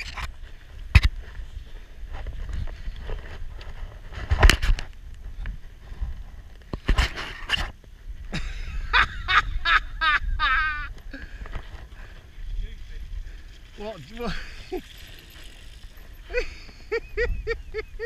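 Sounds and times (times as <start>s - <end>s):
wind buffeting microphone: 8.0s - 18.0s.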